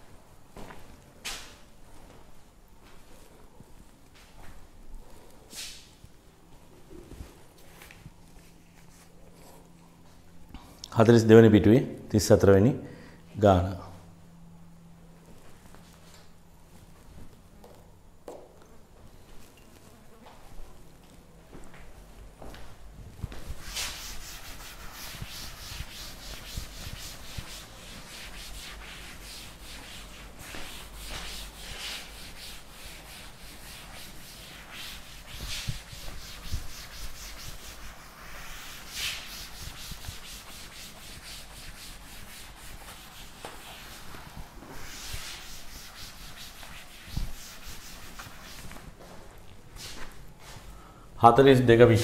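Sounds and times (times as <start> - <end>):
duster rubbing chalkboard: 23.3 - 49.2.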